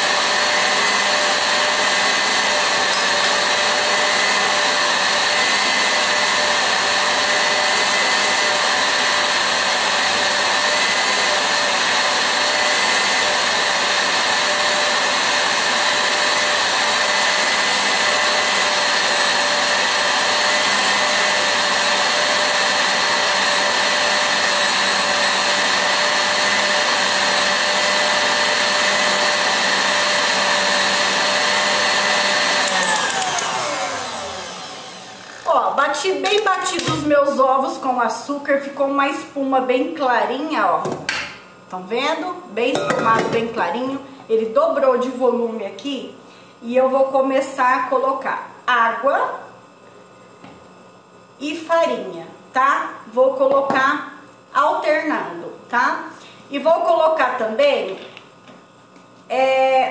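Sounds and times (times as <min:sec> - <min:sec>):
stand mixer whirring: 0:00.0 - 0:35.5.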